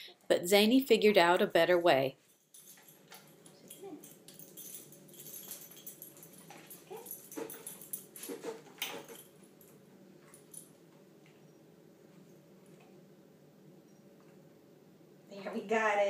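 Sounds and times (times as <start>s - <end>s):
dog claws and tags clicking: 2.5s - 10.7s.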